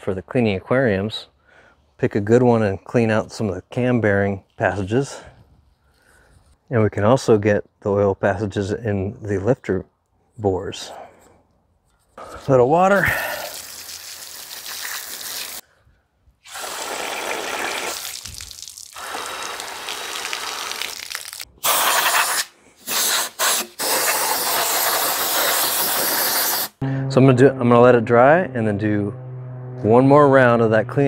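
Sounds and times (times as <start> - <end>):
hose water spraying on metal: 13.0 - 15.6, 16.5 - 26.8.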